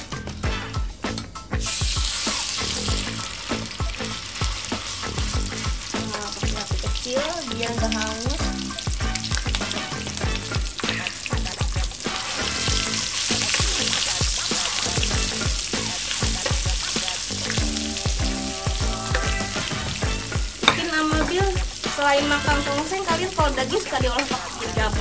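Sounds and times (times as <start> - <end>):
spice paste sizzling in oil: 1.6 - 25.0
metal spatula stirring: 9.2 - 23.1
spatula tap: 20.6 - 21.6.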